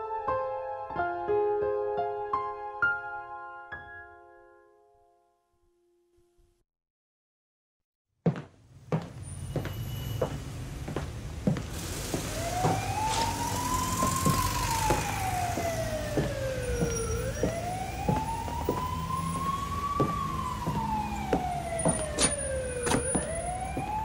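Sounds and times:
siren wailing: 0:12.1 - 0:24.0.

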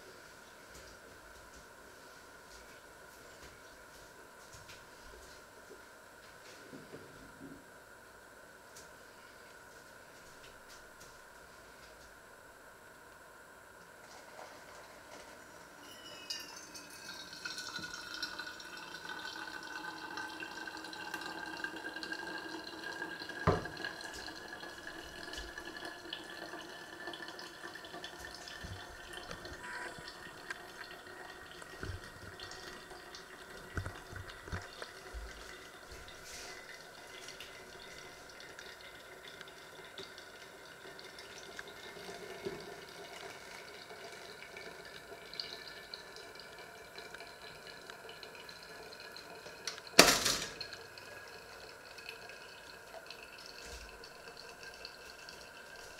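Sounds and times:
coffee trickling and dripping: 0:13.8 - 0:55.9
hot water pouring: 0:14.0 - 0:55.9
faint rising ringing pitch: 0:15.7 - 0:17.2.

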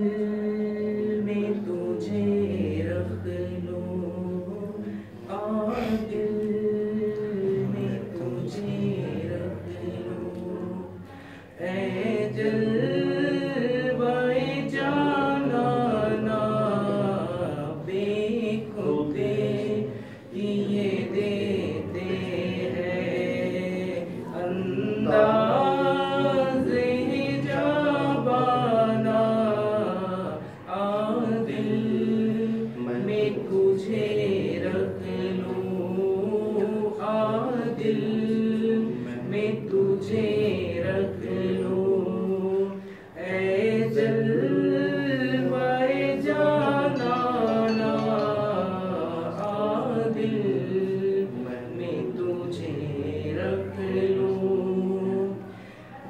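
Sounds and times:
man singing unaccompanied: 0:11.6 - 0:55.4.

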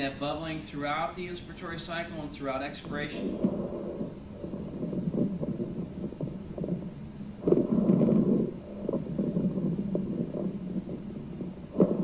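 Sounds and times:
bubbling rattling breath sounds: 0:03.0 - 0:12.0.

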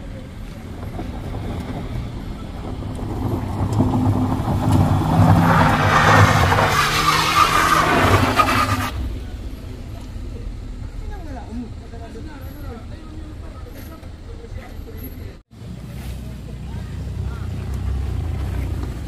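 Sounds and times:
tyres scrabbling on gravel: 0:00.0 - 0:09.0
car engine revving: 0:00.0 - 0:15.1, 0:15.8 - 0:19.0.

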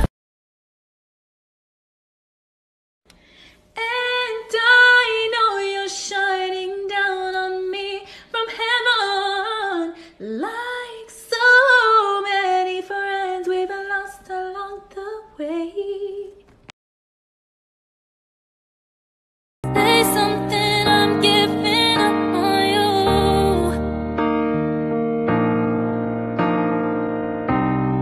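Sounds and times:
woman singing solo: 0:19.7 - 0:23.8.

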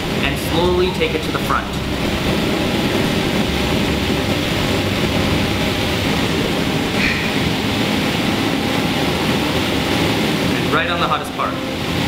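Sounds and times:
bunsen burner flame rushing: 0:00.0 - 0:12.0.

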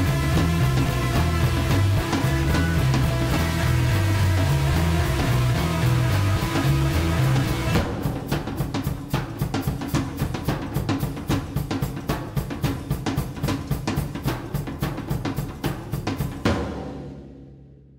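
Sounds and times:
low sustained bass: 0:00.0 - 0:07.8
drum pattern of kick and snare: 0:00.0 - 0:17.9.

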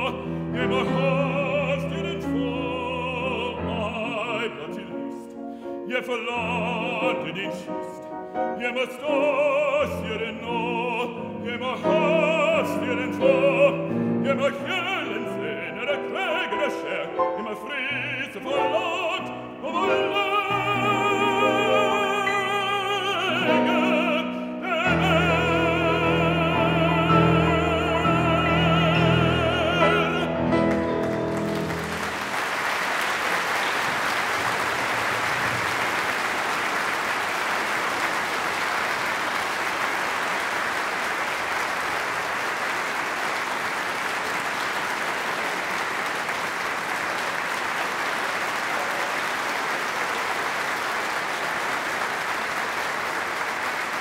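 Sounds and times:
man singing with vibrato: 0:00.0 - 0:31.1
audience applauding: 0:08.7 - 0:54.0
orchestra playing: 0:09.2 - 0:34.4.

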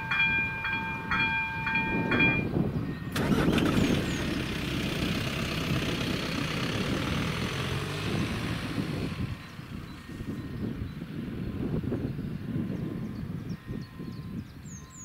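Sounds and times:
level crossing warning bell: 0:00.0 - 0:03.2, 0:09.2 - 0:15.0
car engine and tyre noise: 0:03.1 - 0:13.3.

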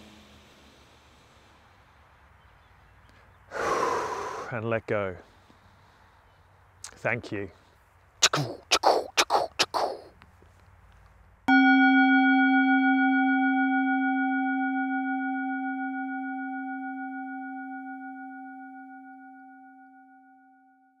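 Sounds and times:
singing bowl ringing: 0:11.5 - 0:21.0.

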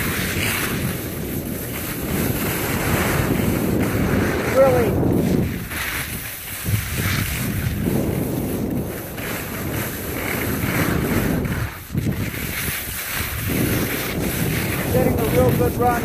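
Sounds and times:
skis hissing on snow: 0:00.0 - 0:16.0
wind on microphone: 0:00.0 - 0:16.0.

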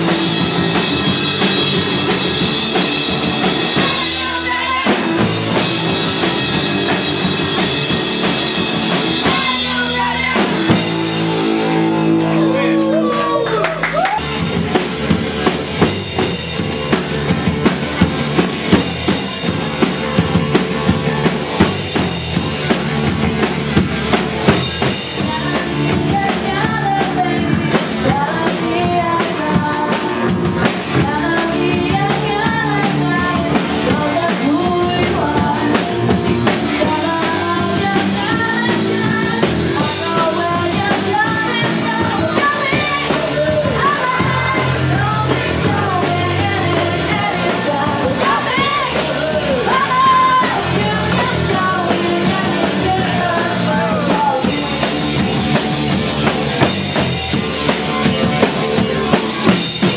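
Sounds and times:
drum kit: 0:00.0 - 0:59.9
electric guitar: 0:00.0 - 0:59.9
person singing: 0:02.8 - 0:14.2, 0:24.8 - 0:55.7.

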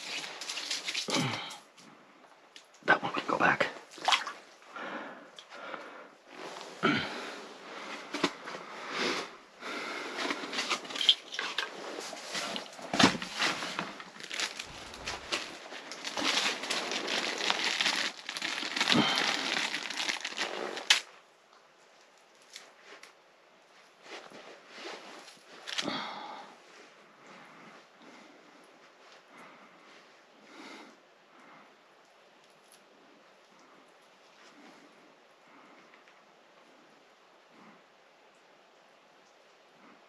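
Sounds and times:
plastic bag rustling: 0:00.0 - 0:01.5, 0:10.0 - 0:21.1, 0:24.0 - 0:25.9
crunching on slushy ice: 0:12.0 - 0:21.1.

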